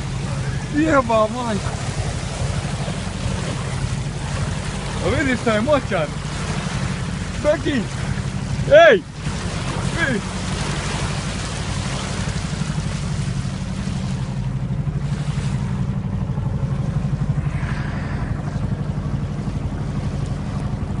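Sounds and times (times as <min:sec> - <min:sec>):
bow wave splashing: 0:00.0 - 0:21.0
motorboat engine humming: 0:00.0 - 0:21.0.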